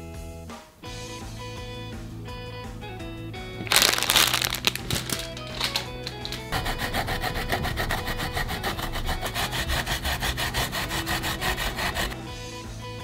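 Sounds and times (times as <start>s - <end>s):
ginger scraping on plastic grater: 3.6s - 12.2s.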